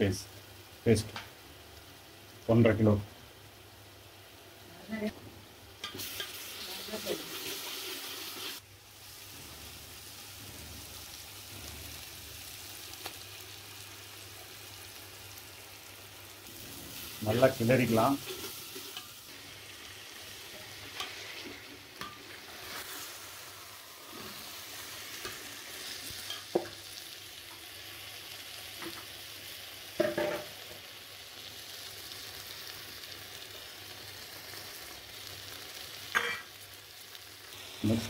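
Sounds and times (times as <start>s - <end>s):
chicken sizzling in a pot: 0.0s - 38.0s
spatula stirring in a pot: 7.0s - 8.6s, 18.1s - 19.5s, 20.2s - 26.7s.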